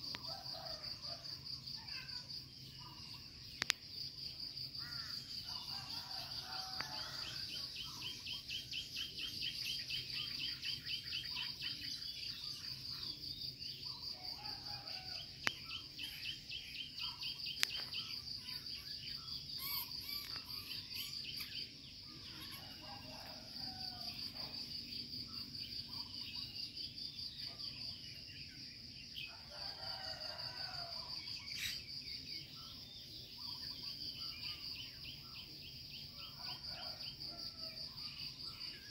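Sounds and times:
fast pulsing insect chirp: 0.0s - 38.9s
insects trilling: 0.0s - 38.9s.

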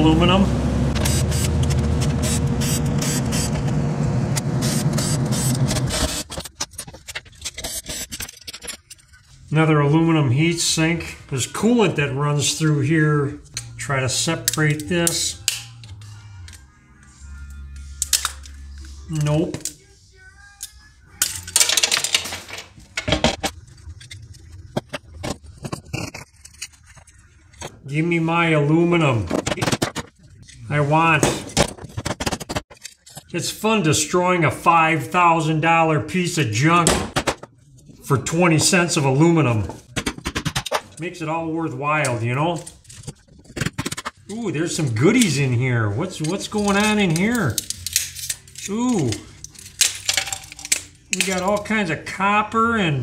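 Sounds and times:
screwdriver scraping metal: 4.7s - 9.2s
handling clicks and clinks: 46.2s - 51.8s.

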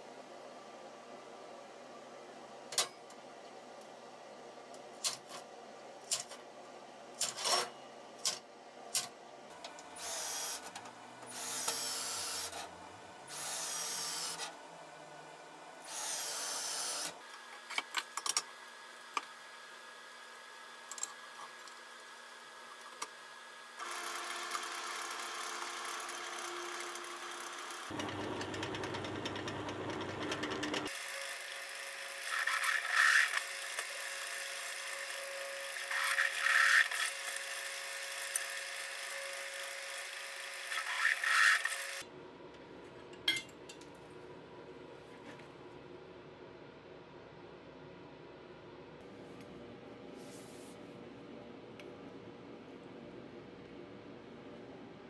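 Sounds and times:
drill press running: 23.8s - 42.0s.

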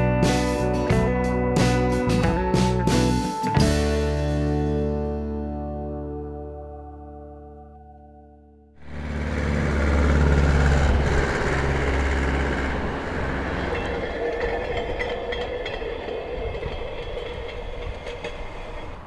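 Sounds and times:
van driving past: 8.8s - 16.4s
rail trolley wheels rolling: 8.8s - 19.0s.

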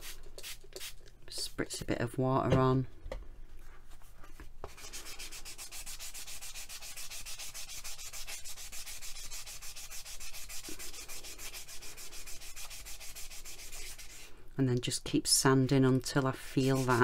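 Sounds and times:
sanding pad rubbing clay: 4.7s - 14.3s, 16.6s - 17.0s.

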